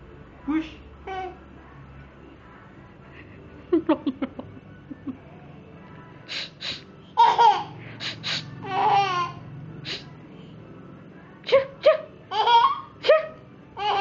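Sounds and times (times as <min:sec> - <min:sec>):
baby laughing: 0:07.2 - 0:09.4, 0:12.3 - 0:13.0, 0:13.8 - 0:14.0.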